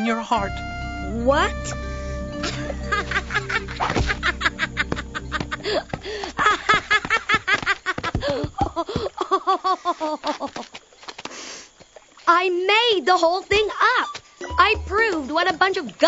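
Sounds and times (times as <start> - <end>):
background music: 0.0 - 6.8, 14.4 - 16.0.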